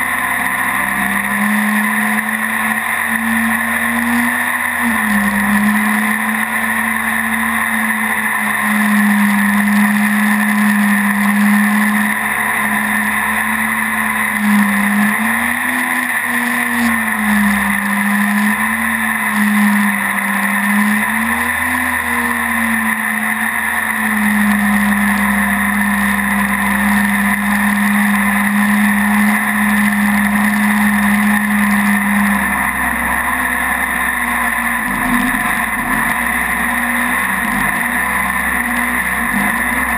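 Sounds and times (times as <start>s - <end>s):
boat engine running: 0.0s - 39.9s.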